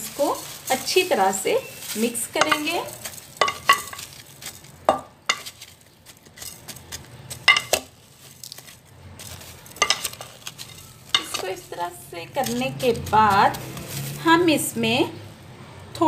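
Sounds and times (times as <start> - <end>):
spoon scraping metal pot: 0.0 - 4.2, 9.6 - 14.2.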